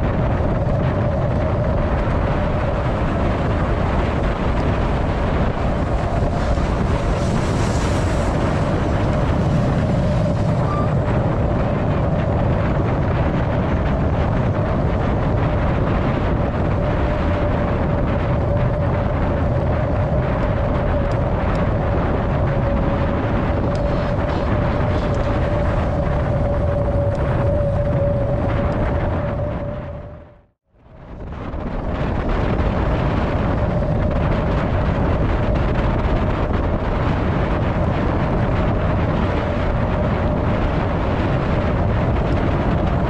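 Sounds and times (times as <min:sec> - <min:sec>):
steady tone: 0:00.0 - 0:30.5
wind buffeting microphone: 0:00.0 - 0:43.0.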